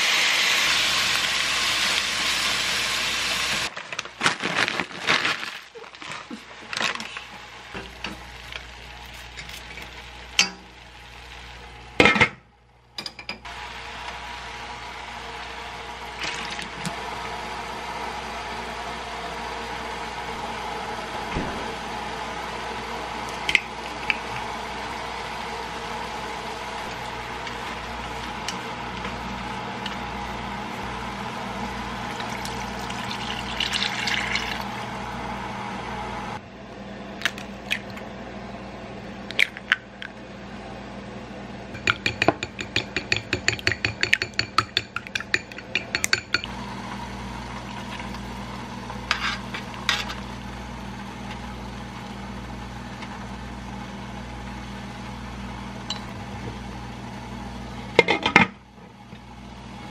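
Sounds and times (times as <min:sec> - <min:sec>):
steady background hum: 0:00.0 - 0:59.9
water poured into hot pan: 0:32.1 - 0:34.8.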